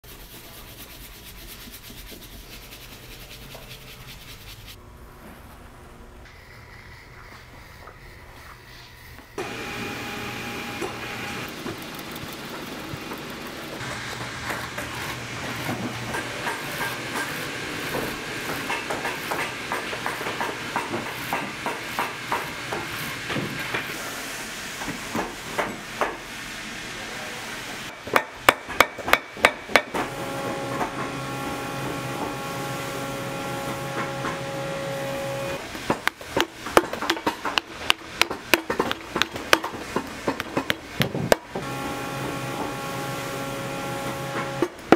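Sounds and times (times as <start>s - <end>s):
sewing machine motor hum: 9.4s - 16.1s, 41.6s - 44.8s
steady hum with held tone: 30.1s - 35.7s.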